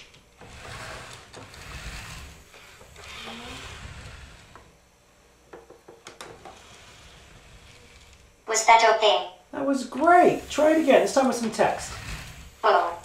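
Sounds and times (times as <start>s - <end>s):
robot motors whirring: 0.4s - 4.7s, 6.4s - 8.3s, 10.0s - 13.0s.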